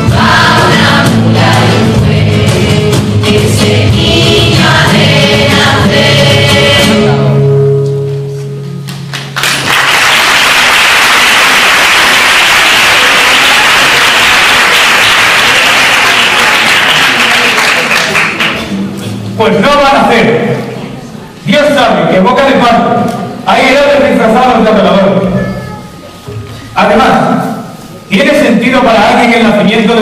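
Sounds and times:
choir singing: 0.0s - 7.4s
audience applause: 9.1s - 18.7s.

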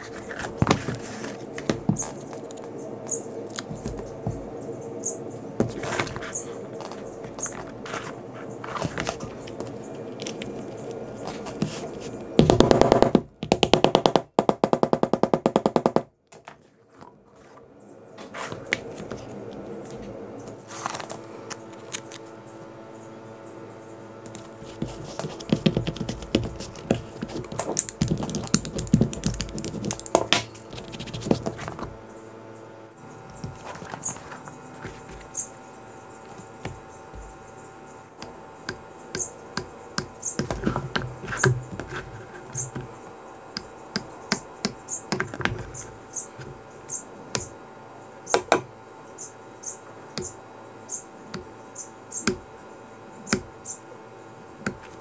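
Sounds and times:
tools tapping on a bench: 48.3s - 48.7s.

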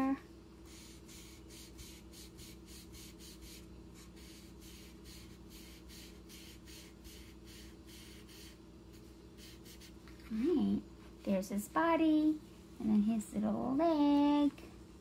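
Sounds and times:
steady low hum: 0.0s - 15.0s
marker rubbing on paper: 0.7s - 10.0s.

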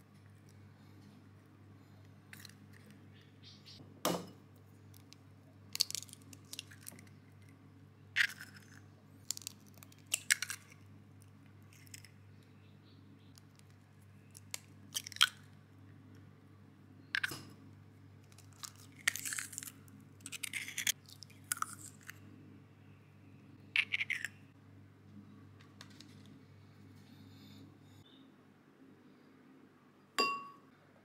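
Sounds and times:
eggshell crackling: 4.9s - 12.5s, 13.2s - 16.2s, 18.2s - 22.3s, 23.8s - 24.5s.

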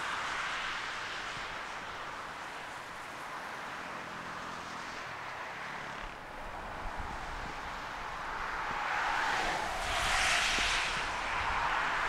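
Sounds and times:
airliner jet engines rushing: 8.2s - 12.0s.

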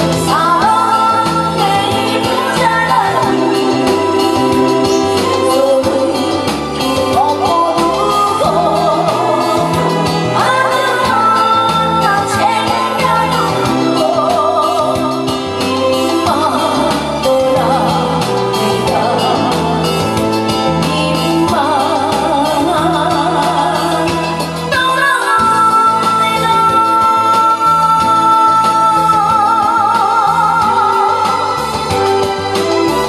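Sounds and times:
musical accompaniment with bass line: 0.0s - 33.0s
woman singing into a microphone: 0.0s - 33.0s.

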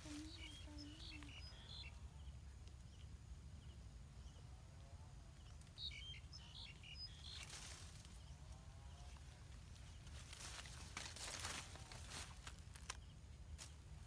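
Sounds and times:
leaves rustling: 0.0s - 1.8s, 6.6s - 14.0s
small bird chirps: 0.0s - 4.6s, 5.4s - 10.2s
low steady rumble: 0.0s - 14.0s.

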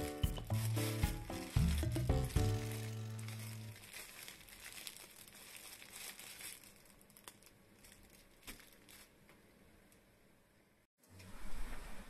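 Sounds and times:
plastic bag crinkling: 0.0s - 9.4s.

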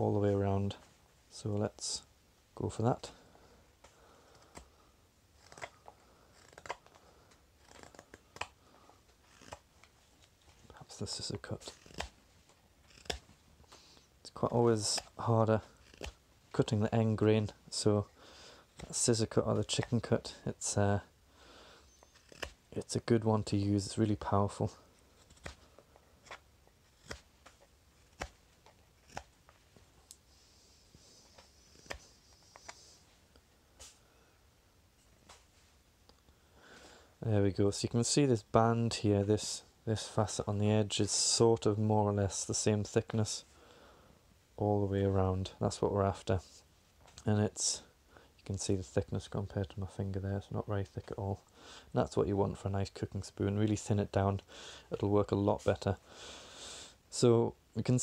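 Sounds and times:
knife carving wood shavings: 5.4s - 8.6s, 9.2s - 9.7s, 10.9s - 16.6s, 21.9s - 22.8s, 24.5s - 27.3s, 28.0s - 29.5s, 31.0s - 32.9s
knife carving wood clicks: 12.9s - 13.2s, 15.8s - 16.2s, 22.0s - 22.6s, 28.0s - 29.3s.

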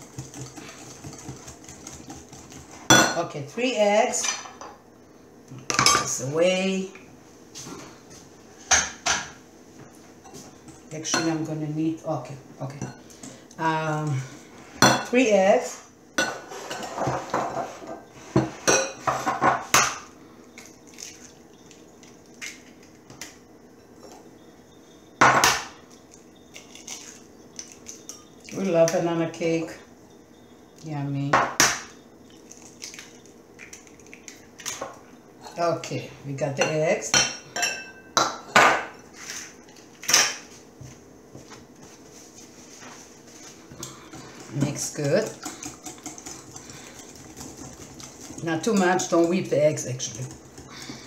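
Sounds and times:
eggs cracking on glass bowl: 31.6s - 35.0s, 43.7s - 49.4s
dishes clinking on countertop: 36.6s - 39.0s.

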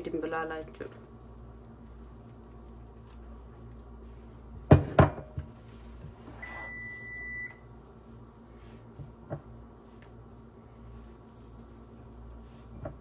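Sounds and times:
appliance electronic beep: 6.4s - 7.7s.

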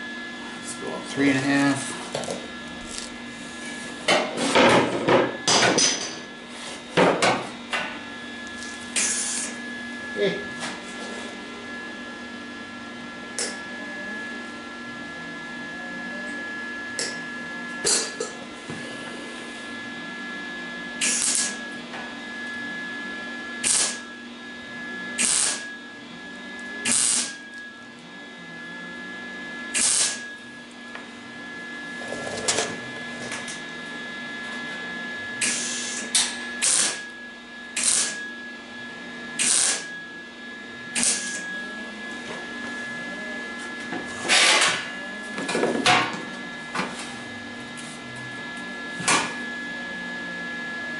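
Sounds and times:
welder hum: 0.0s - 50.4s
welding arc bursts: 21.0s - 21.6s, 23.6s - 24.0s, 25.2s - 25.6s, 26.8s - 27.4s, 29.7s - 30.2s, 36.6s - 37.0s, 37.8s - 38.2s, 39.4s - 39.9s, 41.0s - 41.4s.

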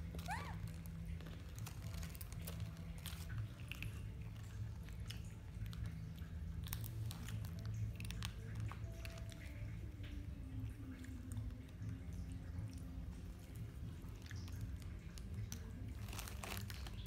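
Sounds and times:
monkey chewing crunchy chips: 0.0s - 9.6s, 12.5s - 17.0s
low steady hum: 0.0s - 17.0s.

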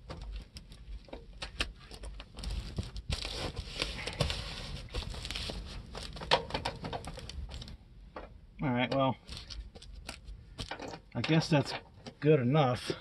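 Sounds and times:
small clicks and knocks: 0.0s - 3.1s, 5.9s - 12.3s
vinyl rustling and crinkling: 0.0s - 7.8s, 9.0s - 10.8s.

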